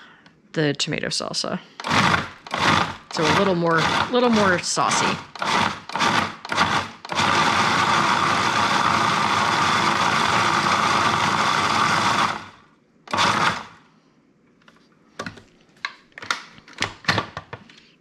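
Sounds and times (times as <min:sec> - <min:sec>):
food processor motor running: 0:01.8 - 0:13.8.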